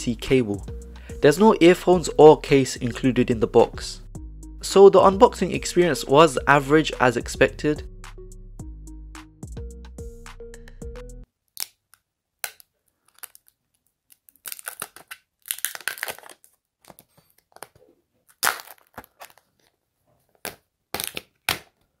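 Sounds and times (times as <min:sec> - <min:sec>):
plastic film crinkling and tearing: 0:13.0 - 0:19.8.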